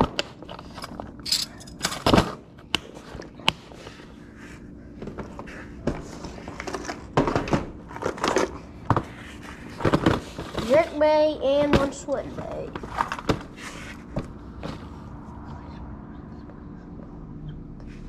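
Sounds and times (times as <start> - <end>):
plastic boxes clicking and knocking: 5.0 - 9.1, 9.8 - 13.6.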